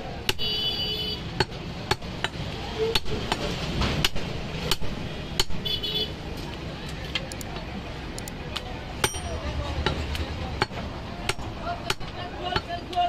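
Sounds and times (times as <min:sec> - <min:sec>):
cleaver chopping meat on wood: 0:00.2 - 0:00.5, 0:01.4 - 0:03.4, 0:04.0 - 0:05.6, 0:10.6 - 0:12.8.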